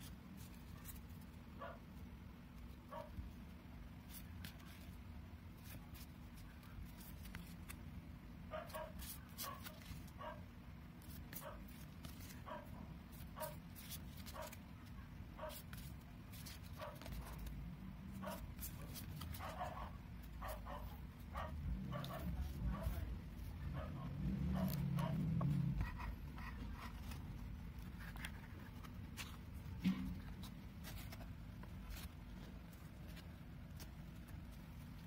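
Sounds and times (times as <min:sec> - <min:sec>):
dog barking: 0:01.6 - 0:01.8, 0:02.9 - 0:03.1, 0:08.5 - 0:10.5, 0:12.4 - 0:13.6, 0:15.4 - 0:15.6, 0:16.8 - 0:17.4, 0:18.2 - 0:18.5, 0:19.4 - 0:23.1, 0:23.7 - 0:25.3.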